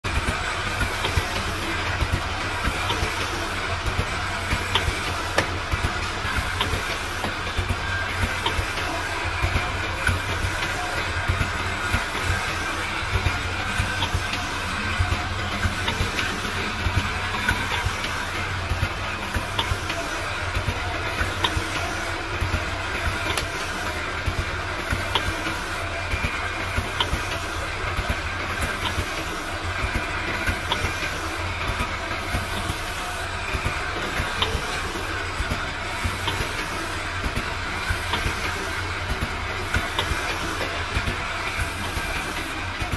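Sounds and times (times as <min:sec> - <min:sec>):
machine hum and hiss: 0:00.0 - 0:42.9
sharp mechanical clicks and clacks: 0:00.0 - 0:42.9.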